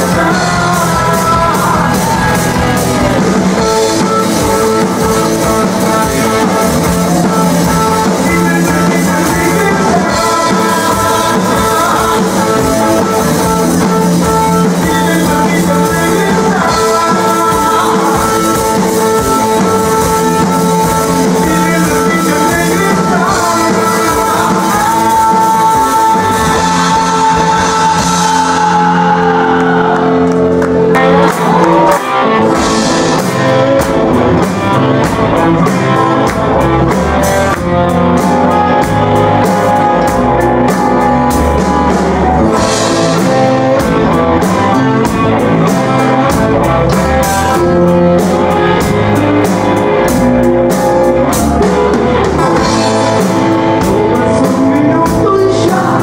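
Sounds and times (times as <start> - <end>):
person singing: 0.0 - 56.0
rock band playing live: 0.0 - 56.0.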